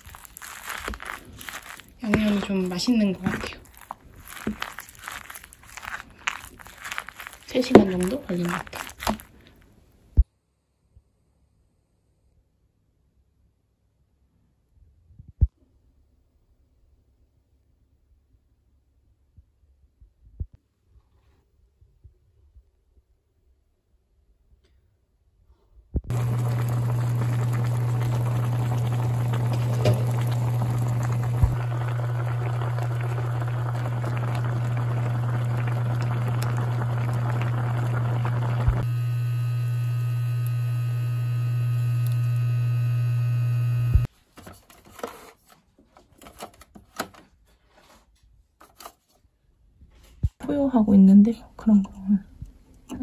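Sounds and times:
electric blender running: 26.1 - 44.1.

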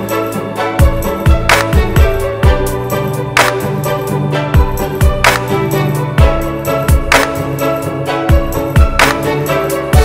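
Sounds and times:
rhythm and blues music: 0.0 - 10.0
kick drums: 0.8 - 2.8, 8.3 - 9.1
snare hits: 3.4 - 3.8, 5.2 - 5.6, 7.1 - 7.4.

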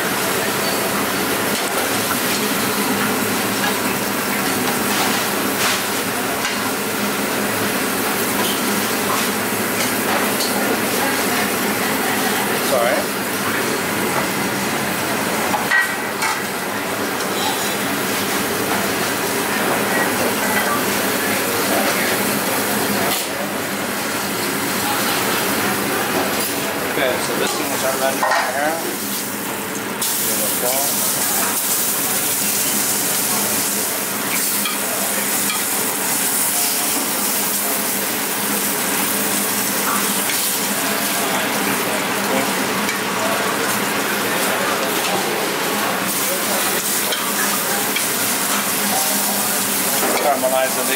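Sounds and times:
beef sizzling in a pan: 0.0 - 14.4, 27.6 - 50.9.

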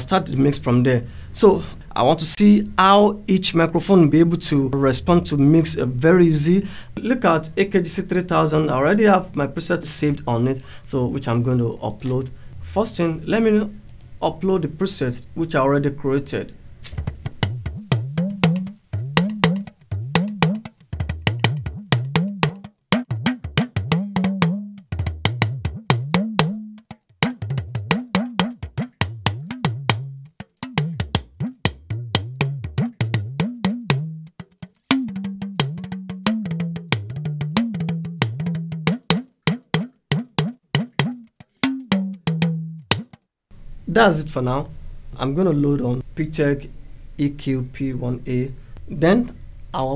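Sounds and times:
talking drum: 16.9 - 43.2.

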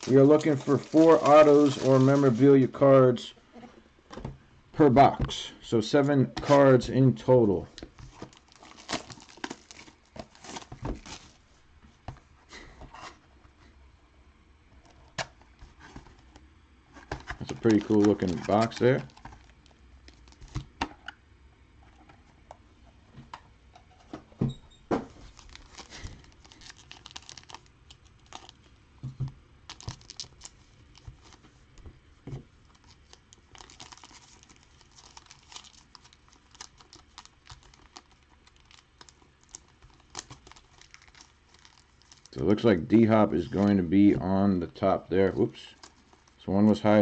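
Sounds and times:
wrapping crinkling and tearing: 0.0 - 2.8, 7.8 - 11.5, 15.6 - 20.7, 25.1 - 28.8, 29.6 - 31.7, 32.6 - 42.5, 45.6 - 46.5.

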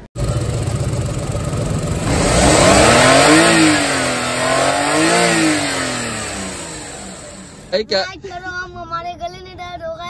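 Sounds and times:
car engine revving: 0.0 - 7.8.

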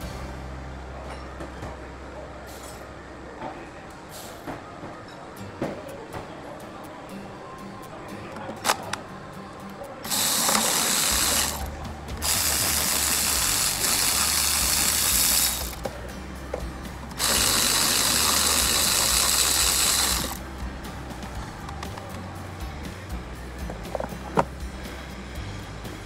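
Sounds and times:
cordless electric ratchet running: 10.1 - 15.8, 17.1 - 20.4.

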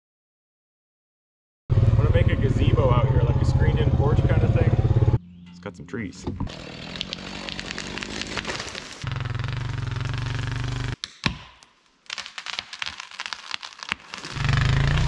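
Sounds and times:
tree cracking and snapping: 6.5 - 9.1, 11.0 - 15.0
chainsaw running: 6.5 - 11.0, 14.2 - 15.0.

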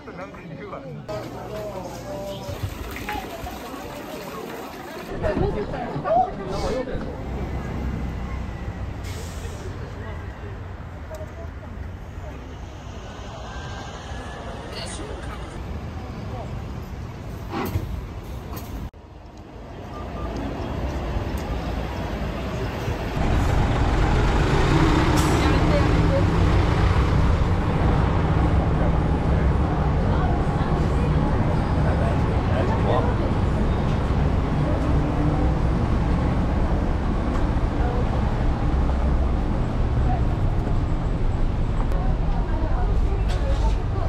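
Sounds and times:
scattered voices: 0.0 - 8.6
vehicle engine rumble: 5.0 - 44.0.

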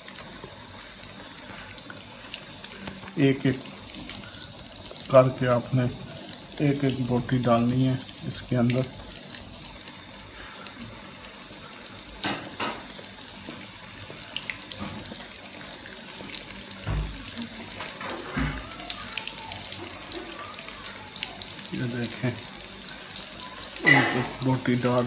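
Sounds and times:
chicken deep-frying in oil: 0.0 - 25.0.

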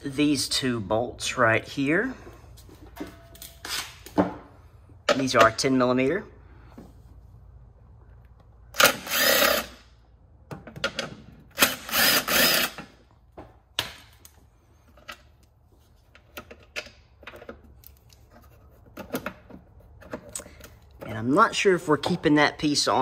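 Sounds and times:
clicks and knocks of handling parts: 12.8 - 21.2.

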